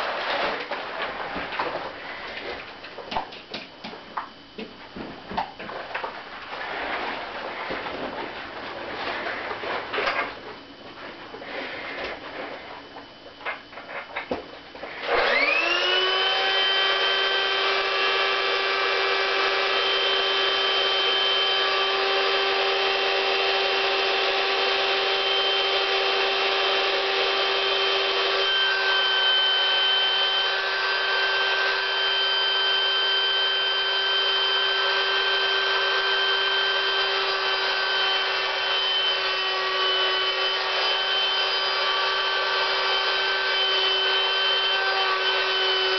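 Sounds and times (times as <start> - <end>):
electric air pump whining: 14.8 - 45.9.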